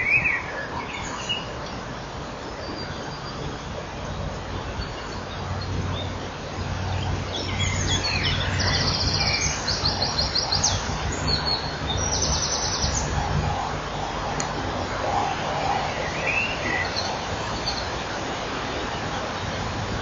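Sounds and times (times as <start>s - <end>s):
steady low hum and hiss: 0.0s - 20.0s.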